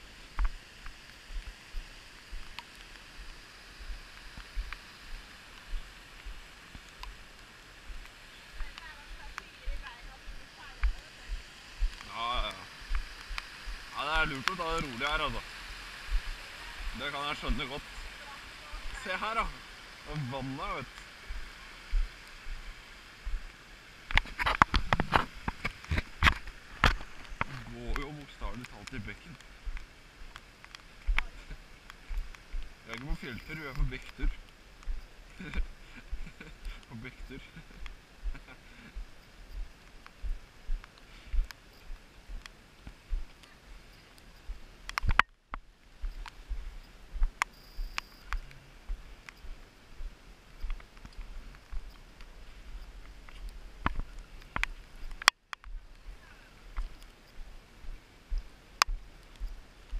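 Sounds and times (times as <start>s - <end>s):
footsteps on rocky trail: 0.3s - 23.5s, 24.1s - 59.6s.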